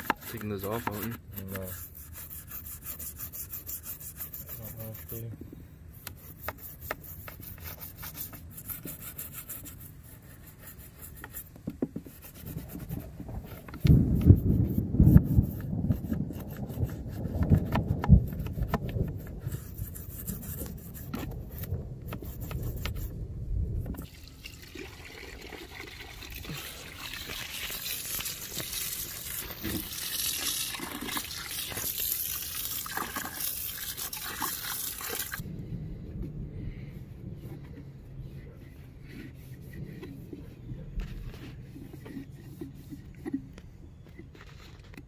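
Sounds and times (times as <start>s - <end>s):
hands and tool knocking on plastic: 11.6s - 12.1s
hose nozzle spraying water: 24.0s - 35.4s.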